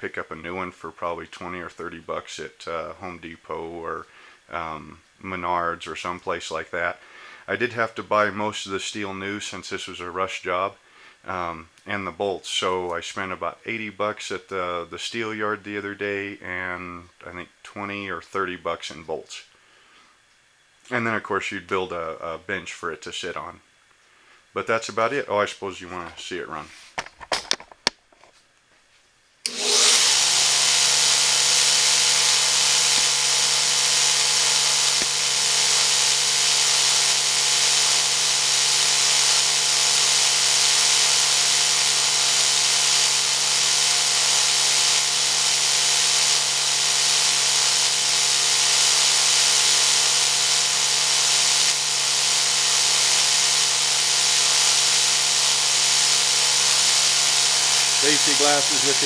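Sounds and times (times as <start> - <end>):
abrasive belt hissing: 29.5 - 59.0
belt grinder motor running: 29.5 - 59.0.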